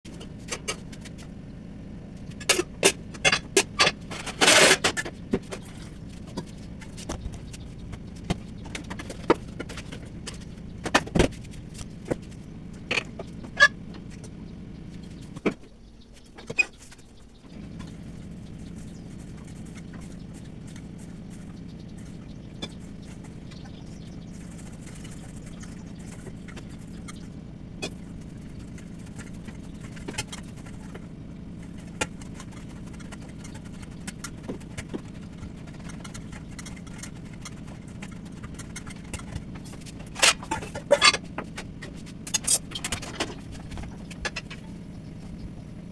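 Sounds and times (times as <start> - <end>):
steady low hum: 0.1 - 45.9.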